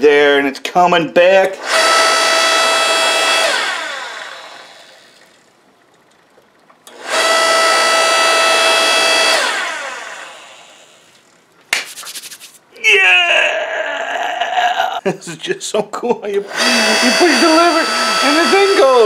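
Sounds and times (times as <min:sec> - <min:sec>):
electric log splitter motor whining: 0:01.6 - 0:05.6, 0:06.8 - 0:11.3, 0:16.4 - 0:19.0.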